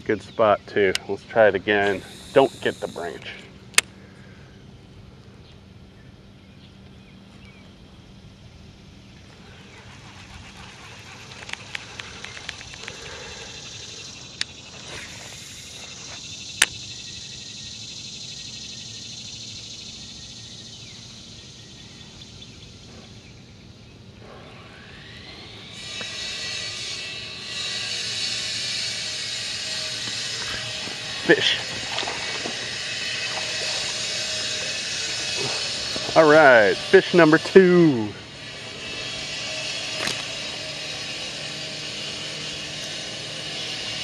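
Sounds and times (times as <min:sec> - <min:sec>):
concrete saw whining: 0:01.0 - 0:03.5, 0:09.3 - 0:18.8, 0:24.2 - 0:44.0
sharp snaps: 0:03.7 - 0:04.0.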